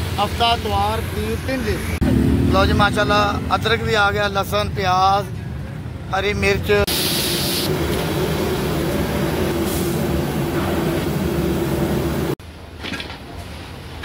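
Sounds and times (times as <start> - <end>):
gas burner roaring: 6.9 - 12.4.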